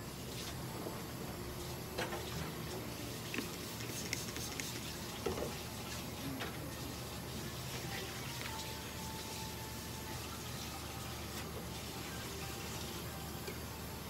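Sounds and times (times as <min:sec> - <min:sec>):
spray bottle squirting: 0:03.3 - 0:05.1.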